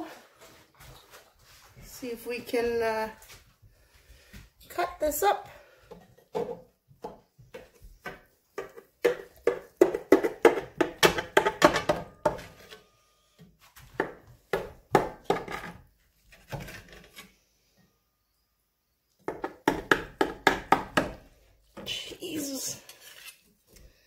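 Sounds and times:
metal utensils scraping a pot: 22.5s - 23.6s.

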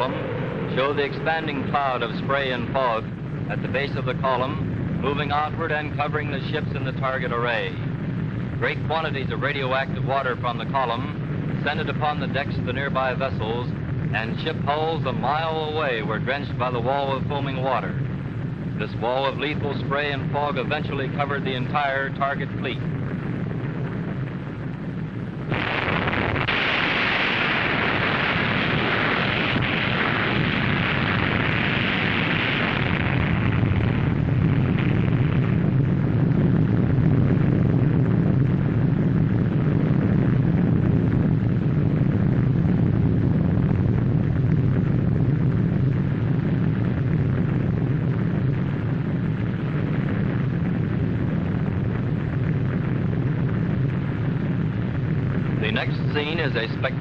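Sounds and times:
low explosion rumble: 0.0s - 57.0s
old film noise: 0.0s - 57.0s
loud hiss: 25.4s - 37.5s, 44.3s - 57.0s.

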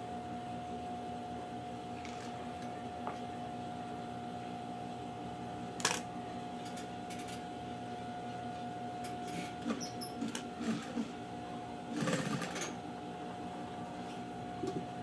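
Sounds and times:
sewing machine hum: 9.3s - 11.2s, 11.9s - 12.8s.

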